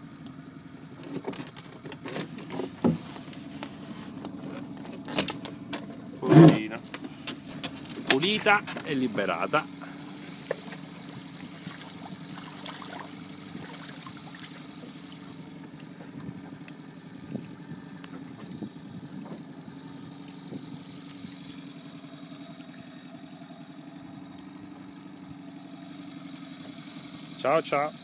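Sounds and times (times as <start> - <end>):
boat engine idling: 0.0 - 28.0
water splashes: 10.4 - 15.5.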